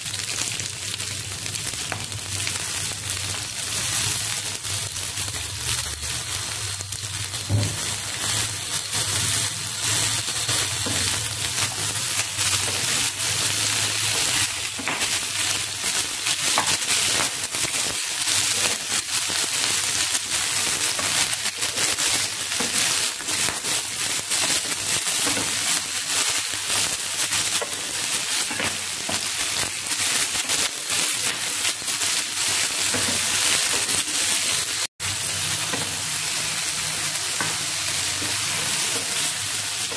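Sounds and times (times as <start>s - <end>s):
chillies sizzling in hot oil: 0.0s - 39.9s.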